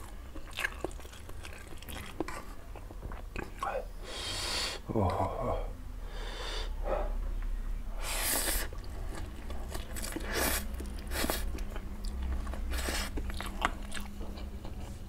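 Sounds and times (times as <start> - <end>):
wet chewing: 0.0 - 3.6, 8.4 - 15.0.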